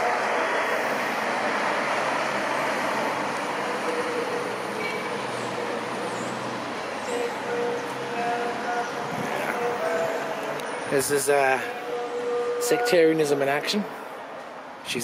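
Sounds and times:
street traffic noise: 0.0 - 15.0.

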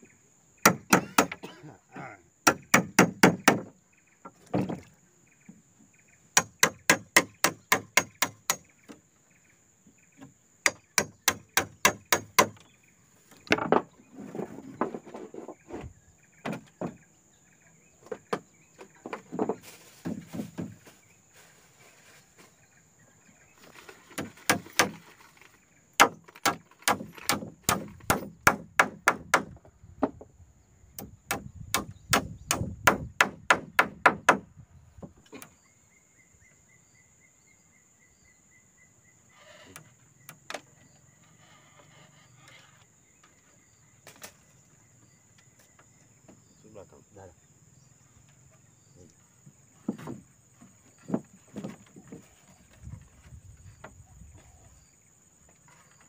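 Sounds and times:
hand tool striking wood: 0.6 - 1.6, 2.4 - 3.7, 6.4 - 8.7, 10.6 - 12.6, 24.0 - 29.6, 31.0 - 34.4
high insect drone: 35.3 - 51.7.

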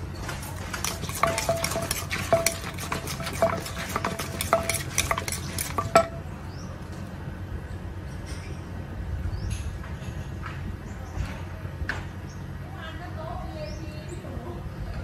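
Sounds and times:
metal spoon scraping mortar: 0.5 - 6.2
wooden pestle knocking: 0.7 - 6.2.

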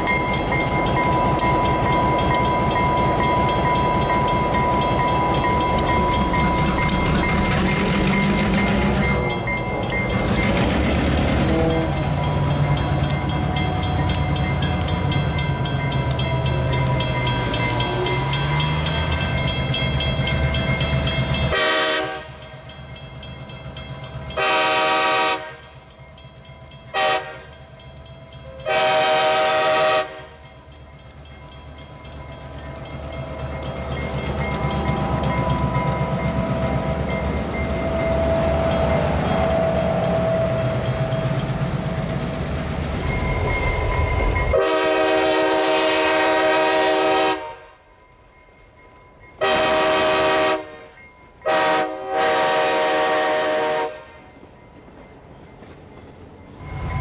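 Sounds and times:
diesel locomotives rumbling past: 0.0 - 57.0
train engine and wheel rumble: 0.0 - 57.0
locomotive air horn: 11.4 - 12.1, 21.5 - 22.4, 24.4 - 25.6, 27.0 - 27.5, 28.6 - 30.4, 44.5 - 47.8, 49.4 - 50.9, 51.5 - 54.2.

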